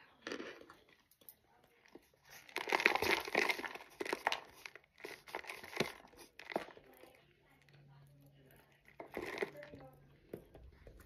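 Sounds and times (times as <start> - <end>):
cornstarch crunching when chewed: 1.9 - 9.8.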